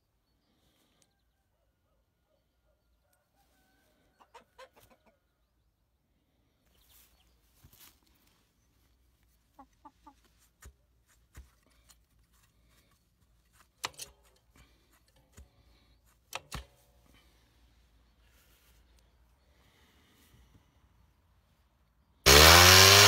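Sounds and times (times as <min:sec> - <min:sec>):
faint chicken clucking: 0:00.0 - 0:13.0.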